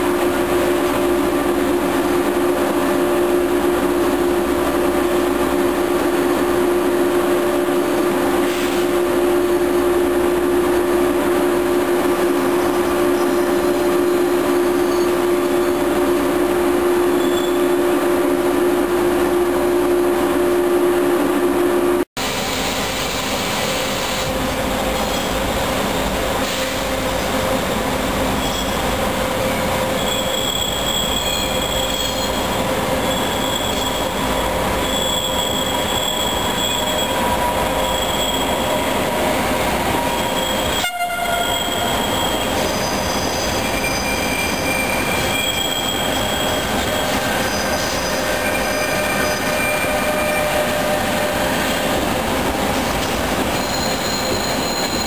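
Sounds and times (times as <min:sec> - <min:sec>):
train approaching: 0:00.0 - 0:55.0
train rumbling over tracks: 0:00.0 - 0:55.0
train wheels squealing: 0:14.5 - 0:15.9, 0:17.0 - 0:17.8, 0:28.2 - 0:52.0, 0:53.0 - 0:55.0.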